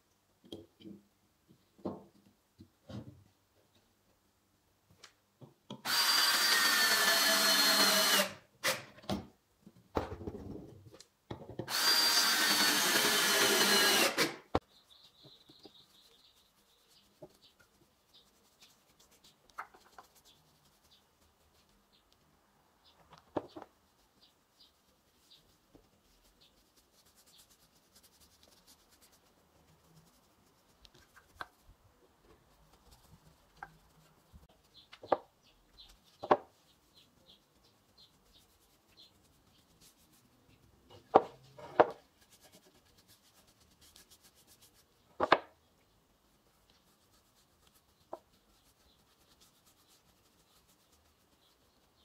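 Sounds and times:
paintbrush rubbing on wood: 15.1 - 22.1, 23.6 - 34.9, 35.6 - 45.1, 46.2 - 52.0.

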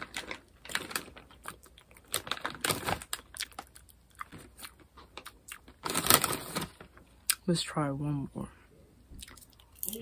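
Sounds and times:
person chewing popcorn: 0.0 - 6.6, 9.2 - 10.0.

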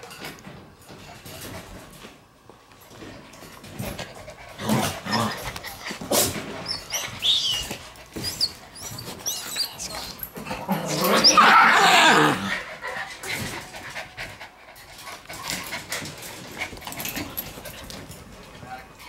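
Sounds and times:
puppies whimpering: 6.6 - 13.1.

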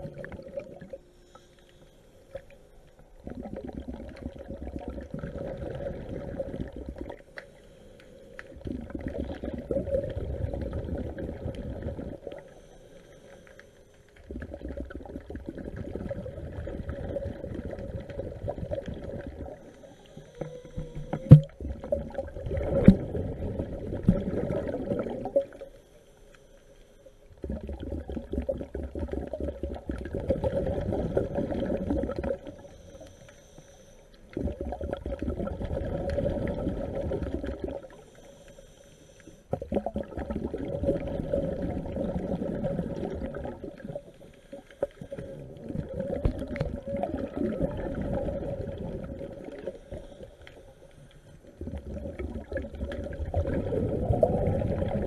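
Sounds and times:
underwater regulator bubbles: 0.0 - 1.1, 2.3 - 12.7, 14.1 - 25.8, 27.4 - 33.3, 34.2 - 38.5, 39.5 - 55.0.

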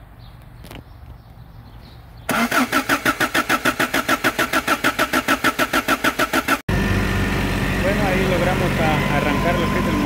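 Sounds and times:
engine cranking by starter motor: 2.3 - 10.0.

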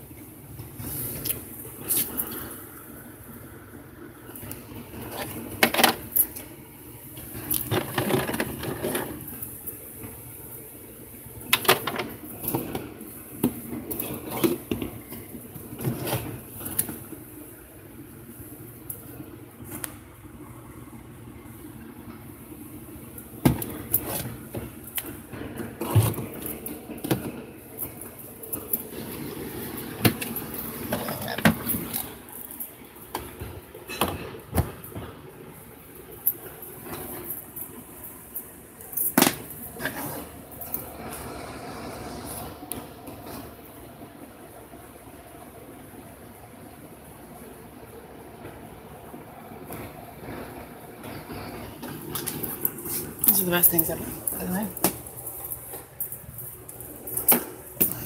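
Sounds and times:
plastic bottles knocking and clattering: 7.5 - 9.3.

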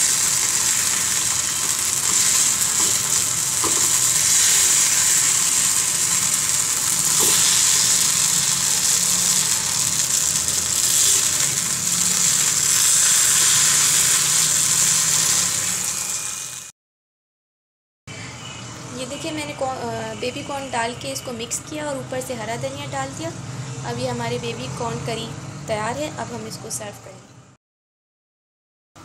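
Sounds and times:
vegetables sizzling in a pan: 0.0 - 16.7.

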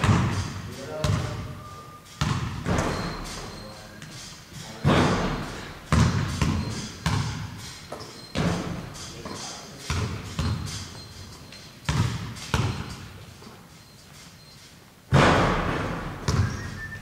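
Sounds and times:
heavy thuds: 15.1 - 17.0.

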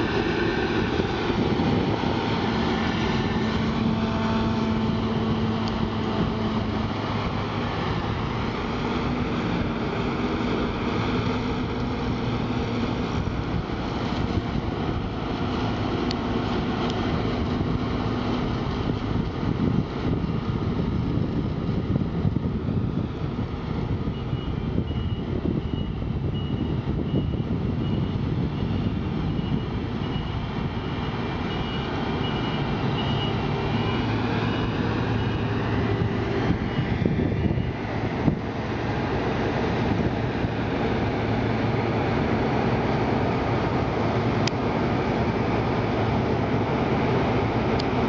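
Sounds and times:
combine harvester droning: 0.0 - 48.0
reversing beeper: 24.1 - 37.8.

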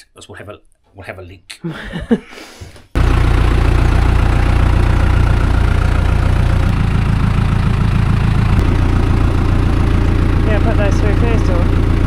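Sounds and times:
engine idling: 3.0 - 12.0.

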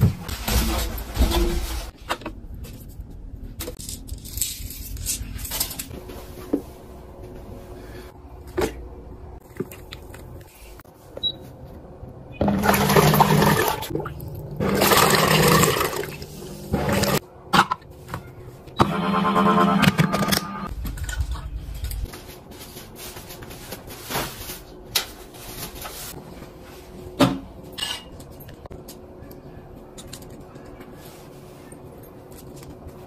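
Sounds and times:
low motor hum: 20.1 - 22.1.

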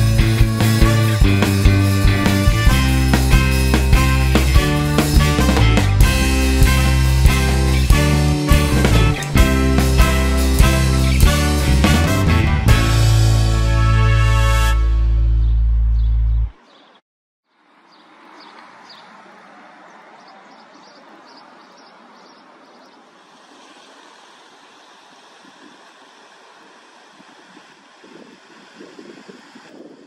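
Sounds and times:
background music: 0.0 - 15.5
distant traffic: 15.4 - 30.0
river water rushing: 17.7 - 29.6
wind buffeting microphone: 26.7 - 30.0.

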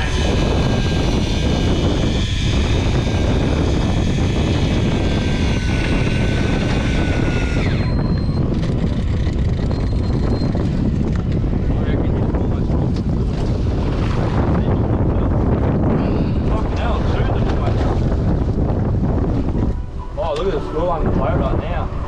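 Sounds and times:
electric fishing reel motor whining: 0.0 - 11.4
wind rumble on microphone: 0.0 - 22.0.

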